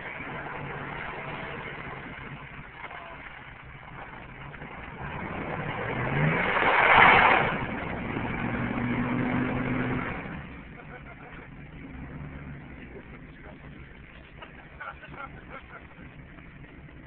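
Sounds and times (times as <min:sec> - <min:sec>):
ice crunching and water splash: 0:00.0 - 0:11.3
engine running and revving: 0:00.0 - 0:17.0.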